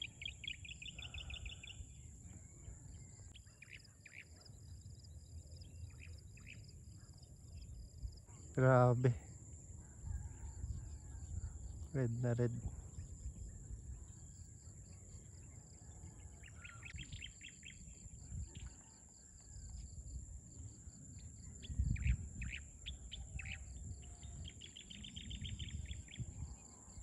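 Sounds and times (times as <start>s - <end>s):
birds chirping: 0.0s - 9.4s, 21.2s - 27.0s
insects droning: 0.0s - 27.0s.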